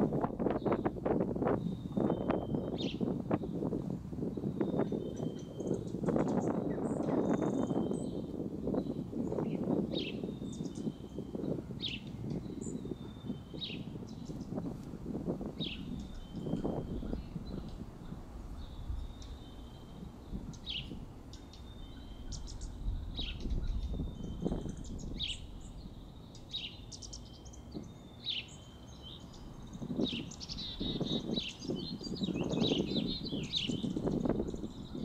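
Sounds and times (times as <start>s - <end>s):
small bird calling: 15.5s - 35.0s.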